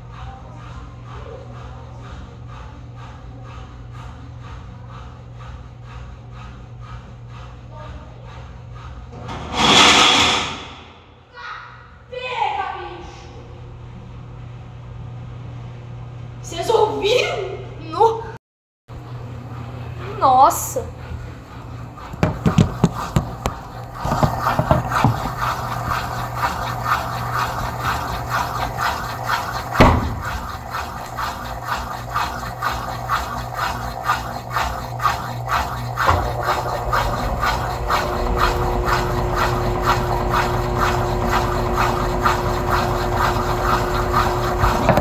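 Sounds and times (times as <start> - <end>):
washing machine clattering: 19.0 - 45.0
higher hum with deeper rumble: 19.2 - 45.0
loud knock: 29.7 - 30.3.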